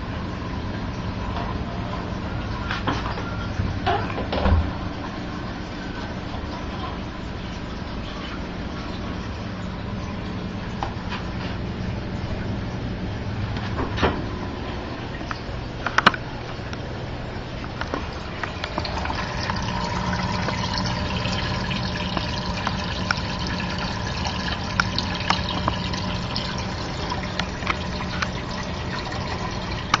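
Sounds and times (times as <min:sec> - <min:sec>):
low steady hum: 0:00.0 - 0:30.0
water trickling from filter outlet: 0:00.0 - 0:30.0
small water splashes: 0:17.6 - 0:30.0.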